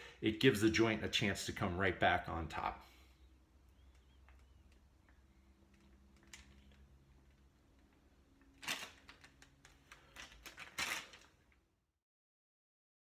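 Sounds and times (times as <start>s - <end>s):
faint room hum: 0.0s - 11.9s
small clicks and crackles: 3.7s - 11.6s
crackling rustle of handling: 3.7s - 11.7s.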